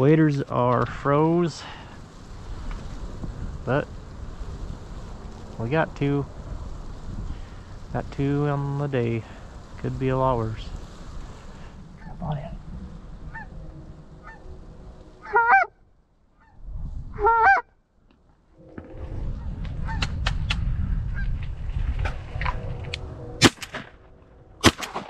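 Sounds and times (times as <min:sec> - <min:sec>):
wind noise on microphone: 0:00.8 - 0:15.7, 0:16.4 - 0:17.7, 0:18.6 - 0:24.7
geese honking: 0:13.2 - 0:14.6, 0:15.2 - 0:15.8, 0:17.2 - 0:17.7
shotgun blasts: 0:23.4 - 0:24.0, 0:24.6 - 0:25.0.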